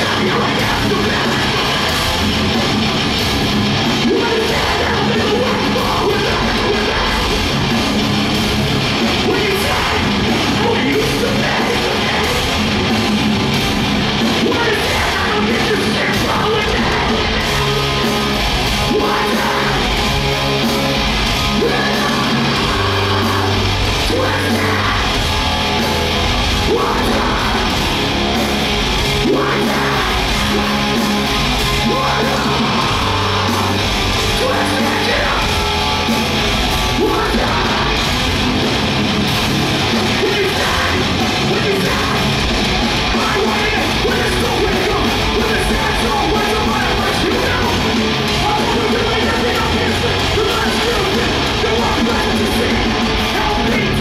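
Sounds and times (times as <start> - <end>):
shouted vocals: 0.0 - 3.1, 3.7 - 7.9, 8.8 - 54.0
punk band playing loud: 0.0 - 54.0.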